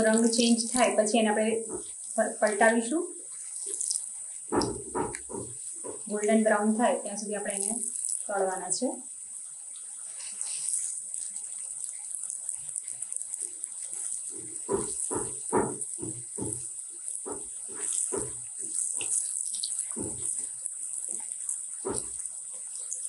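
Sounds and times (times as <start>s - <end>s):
spoon knocking in pan: 0.0s - 2.6s, 4.5s - 6.4s, 14.2s - 22.3s
oil sizzling while deep-frying: 0.0s - 23.0s.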